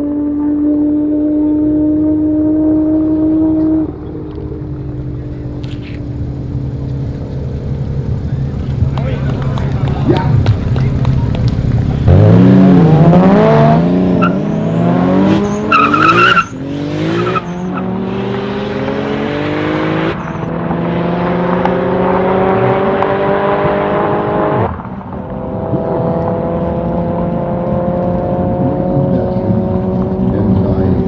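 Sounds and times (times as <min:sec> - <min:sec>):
car engines accelerating: 0:00.0 - 0:31.0
high tyre squeal: 0:14.2 - 0:18.1.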